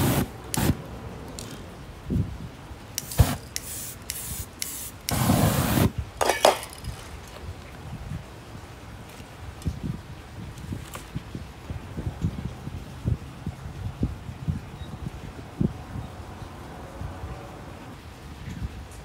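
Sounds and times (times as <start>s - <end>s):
spray-paint can hissing: 0.0s - 0.8s, 3.0s - 5.9s.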